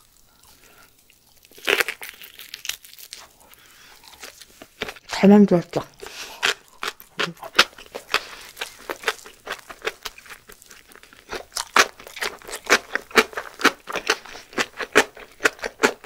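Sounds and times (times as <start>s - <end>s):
seaweed wrapper crackling: 0.0s - 5.1s, 6.0s - 16.0s
chewing sounds: 6.0s - 16.0s.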